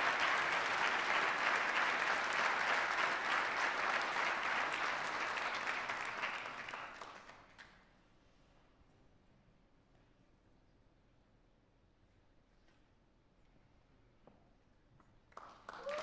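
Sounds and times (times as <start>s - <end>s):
audience applauding: 0.0s - 7.6s, 15.4s - 16.0s.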